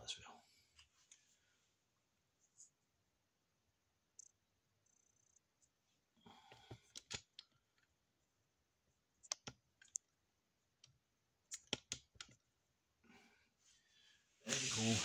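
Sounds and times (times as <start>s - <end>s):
computer mouse clicks: 6.8s - 7.5s, 9.2s - 10.1s, 10.8s - 12.4s.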